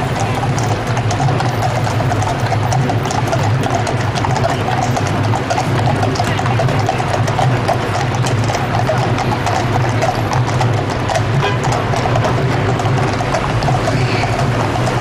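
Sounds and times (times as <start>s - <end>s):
horse hooves on tarmac: 0.0s - 15.0s
low traffic engine hum: 0.0s - 15.0s.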